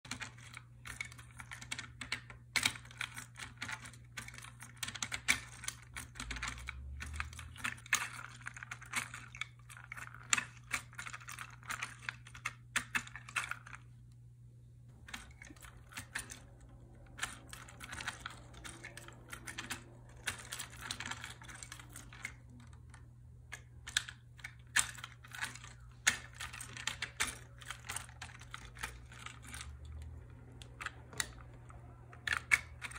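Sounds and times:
wooden gears clicking and rattling: 0.1 - 13.8, 15.0 - 32.9.

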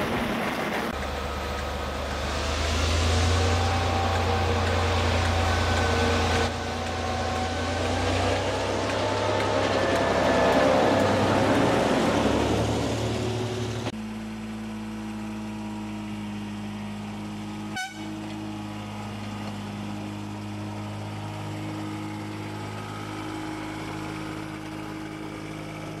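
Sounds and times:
passenger train rolling past: 0.0 - 13.9
diesel locomotive engine idling: 0.3 - 26.0.

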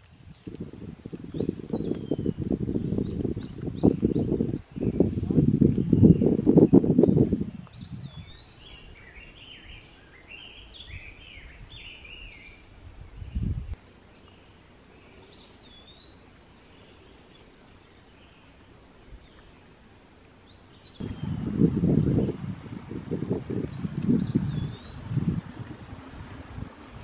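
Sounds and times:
songbirds chirping: 0.0 - 27.0
low microphone rumble: 0.4 - 9.2, 20.9 - 27.0
high whistled bird calls: 7.0 - 12.6, 14.2 - 18.5, 23.2 - 25.4.

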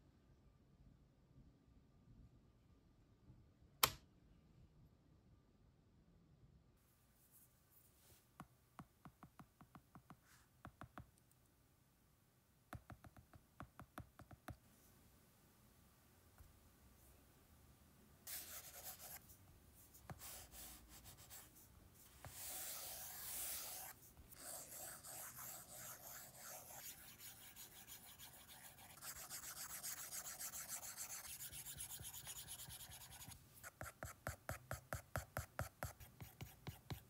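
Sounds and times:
stylus scratching on screen: 18.3 - 19.2, 22.2 - 37.0.

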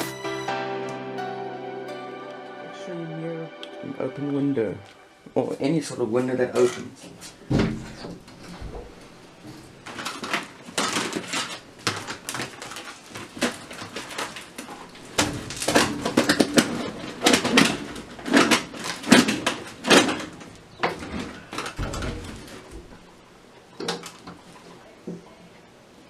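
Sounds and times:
foil hose crinkling: 6.2 - 24.9.

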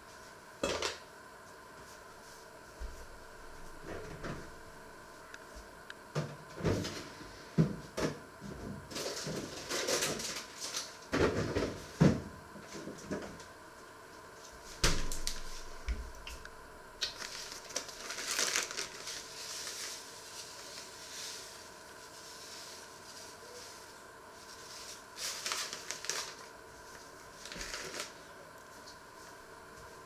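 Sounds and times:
plastic bag rustling: 17.0 - 29.4.

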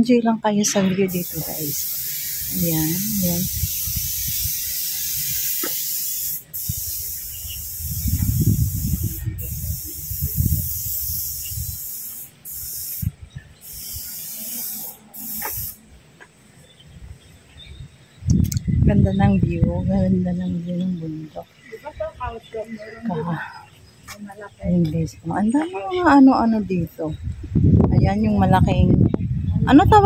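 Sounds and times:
wind rumbling on microphone: 0.0 - 5.5, 6.6 - 11.9, 12.9 - 14.1, 16.8 - 30.0
steady high hiss: 0.7 - 17.7.

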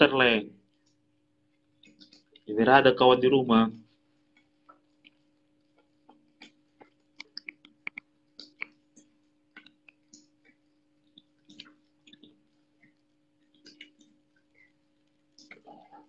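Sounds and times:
faint steady hum: 0.0 - 16.0
otter chewing wet crunches: 5.0 - 16.0.

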